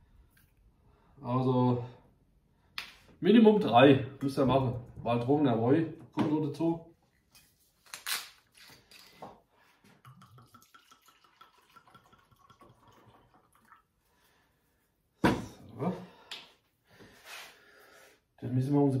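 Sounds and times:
wine trickling into pan: 0:10.0 - 0:14.0.

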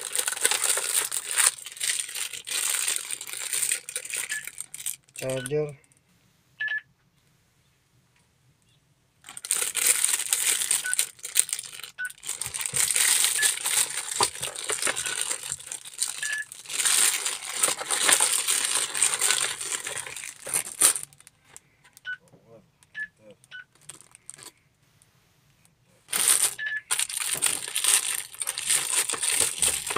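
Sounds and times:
plastic bags crinkling: 0:00.0 - 0:05.4, 0:09.2 - 0:21.6, 0:23.7 - 0:24.5, 0:26.1 - 0:29.9.

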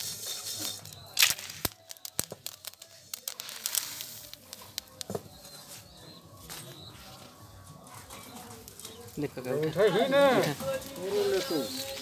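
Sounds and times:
grains crackling in a hot wok: 0:00.0 - 0:05.1.

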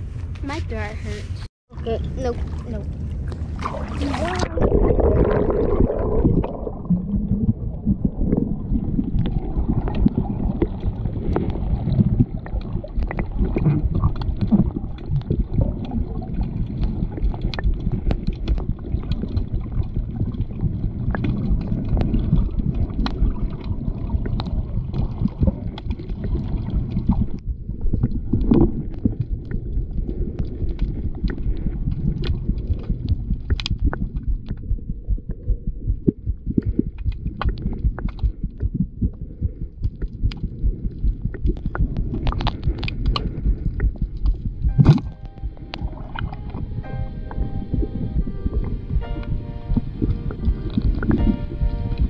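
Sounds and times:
muffled underwater rumble: 0:00.0 - 0:52.0
sharp clicks and crackles: 0:09.1 - 0:39.2, 0:39.8 - 0:46.7.

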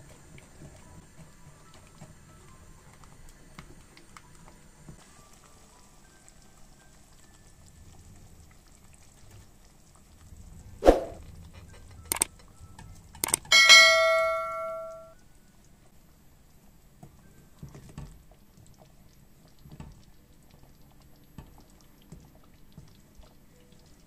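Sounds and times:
sharp clicks: 0:12.1 - 0:12.3, 0:13.2 - 0:13.8
metal kitchenware clanging: 0:13.2 - 0:15.1.

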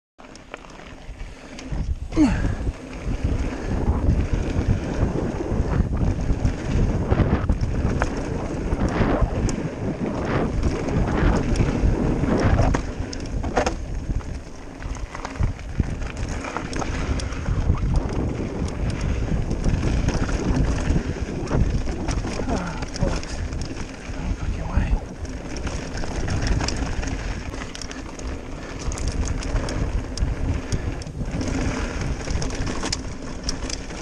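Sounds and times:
bike tyre noise on gravel: 0:00.2 - 0:34.0
wind rushing over microphone: 0:01.1 - 0:34.0
bike rattling knocks: 0:10.0 - 0:34.0.

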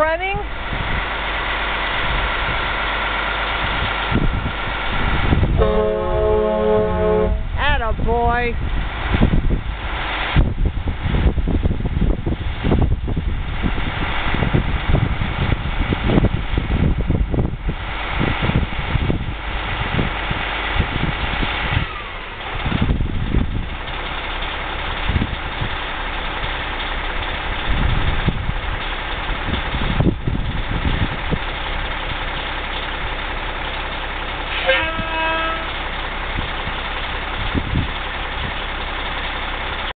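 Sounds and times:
diesel engine idling: 0:00.0 - 0:39.9
short horn toot: 0:05.6 - 0:07.6, 0:34.5 - 0:35.8.

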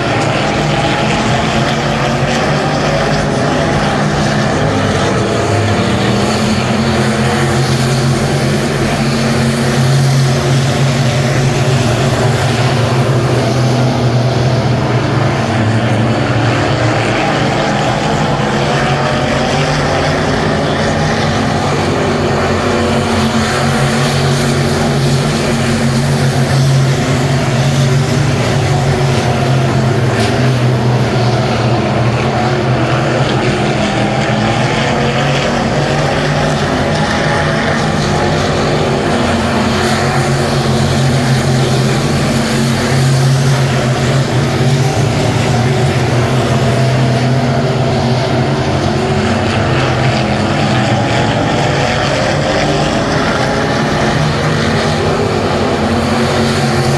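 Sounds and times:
race car engines droning: 0:00.0 - 0:56.9.

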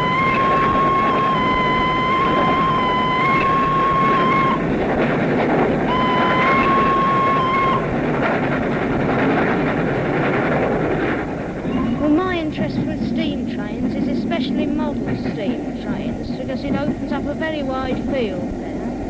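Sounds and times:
steam locomotive whistle blasts: 0:00.0 - 0:05.0, 0:05.8 - 0:08.0
train running noise: 0:00.0 - 0:19.0.

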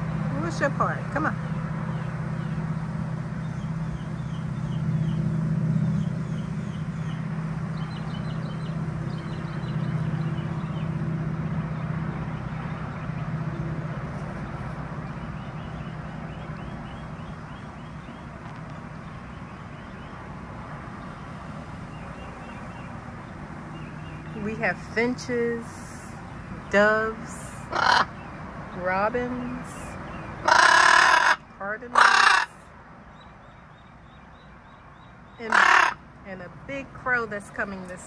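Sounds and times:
low motor hum: 0:00.0 - 0:30.4
songbirds chirping: 0:00.0 - 0:38.0.

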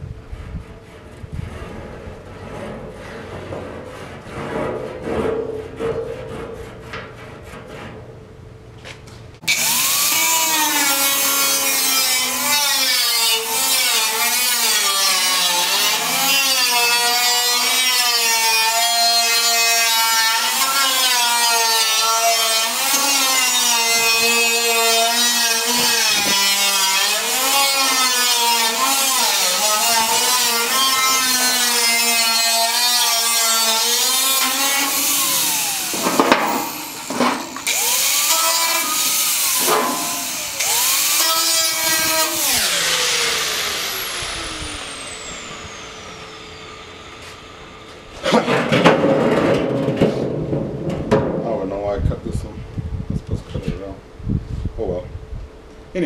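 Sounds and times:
angle grinder cutting metal: 0:09.4 - 0:48.7
knocks: 0:48.3 - 0:51.6.

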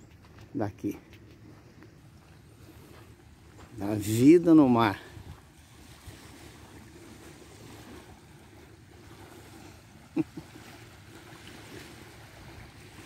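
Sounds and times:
water lapping at beach: 0:00.0 - 0:13.0
wind on microphone: 0:04.7 - 0:09.6.

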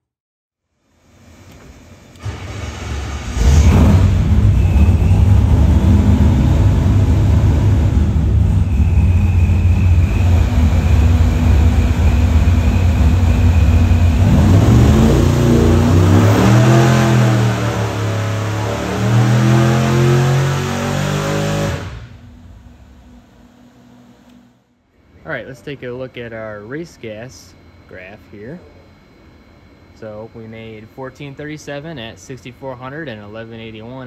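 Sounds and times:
thin high whine: 0:01.0 - 0:34.0
engine running hard: 0:02.2 - 0:23.1.

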